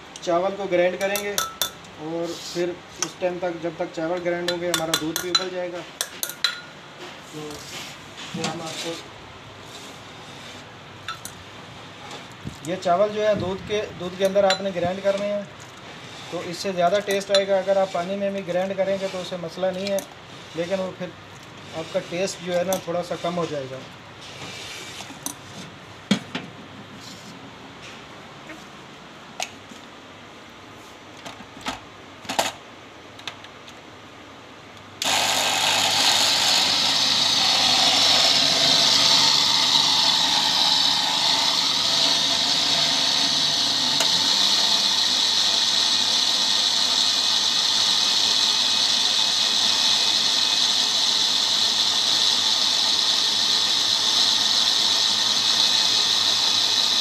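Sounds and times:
blender grinding: 35.0 - 57.0.

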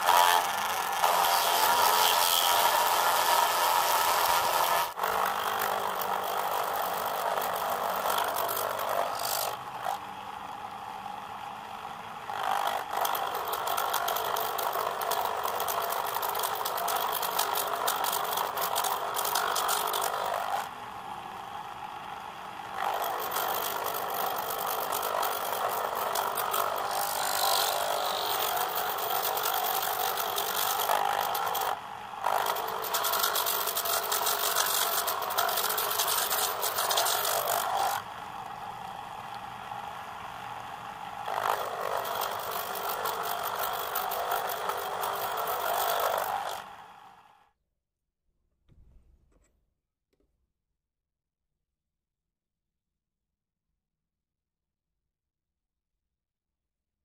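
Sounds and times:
cutting tool scraping metal: 0.0 - 10.0, 12.3 - 20.7, 22.8 - 38.0, 41.3 - 46.8
lathe motor whirring: 0.0 - 47.4.

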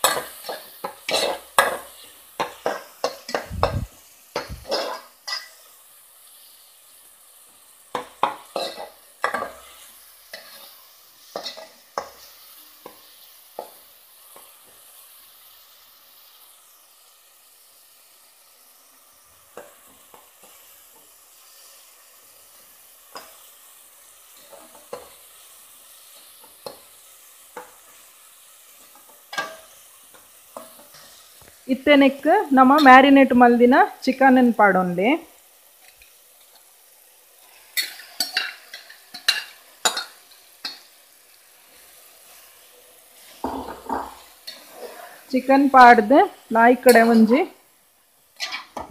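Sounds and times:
vegetables sizzling in oil: 0.0 - 48.9
metal spoon scraping a pot: 48.4 - 48.7.

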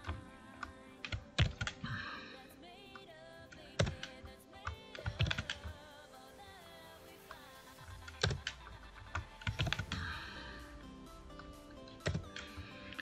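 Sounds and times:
keyboard and mouse clicks: 0.0 - 2.0, 3.0 - 5.9, 8.0 - 10.2, 11.3 - 13.0
quiet background music: 0.0 - 13.0.

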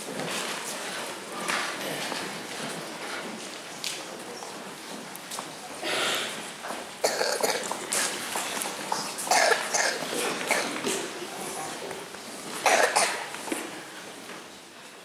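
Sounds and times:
low murmuring voices: 0.0 - 15.0
short coughs: 5.8 - 6.4, 7.0 - 8.1, 8.9 - 11.0, 12.6 - 13.3.

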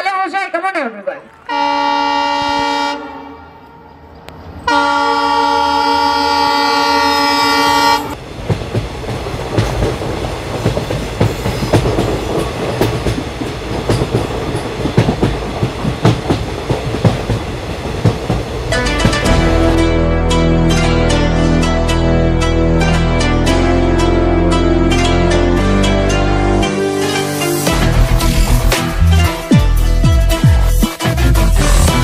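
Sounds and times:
train horn over speakers: 1.4 - 8.2
train wheels clickety-clack: 8.2 - 19.2.

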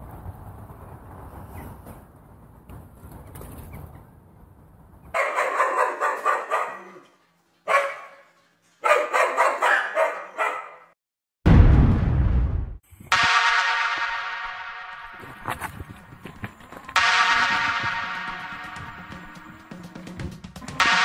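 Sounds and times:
dog barking: 5.1 - 10.9.

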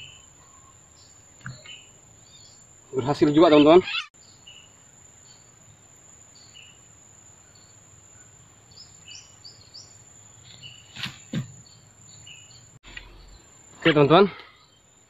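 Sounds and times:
brief knocks or rustles: 10.9 - 11.6.

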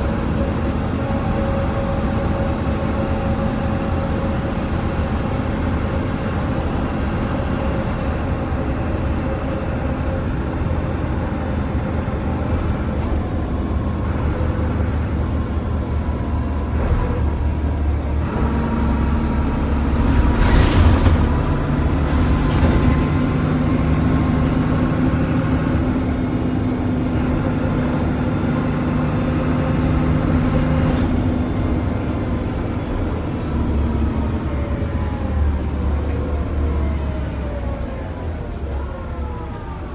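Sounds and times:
bus engine drone: 0.0 - 39.9.

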